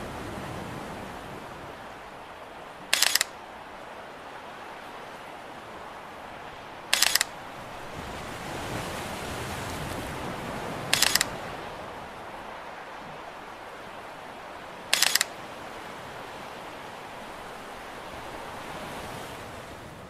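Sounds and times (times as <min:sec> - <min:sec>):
sea surf: 0:00.0 - 0:20.0
camera shutter clicks: 0:02.9 - 0:03.4, 0:06.9 - 0:07.4, 0:10.9 - 0:11.3, 0:14.9 - 0:15.4.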